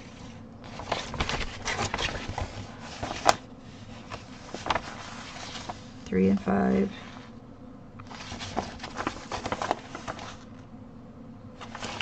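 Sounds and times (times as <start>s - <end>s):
paper pages rustling: 0.0s - 6.0s, 8.0s - 10.6s, 11.6s - 12.0s.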